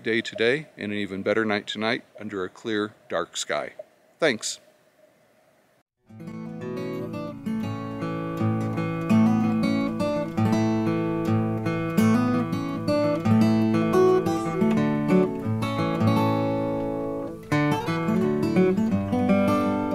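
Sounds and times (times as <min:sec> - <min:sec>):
acoustic guitar piece: 0:06.0 - 0:19.9.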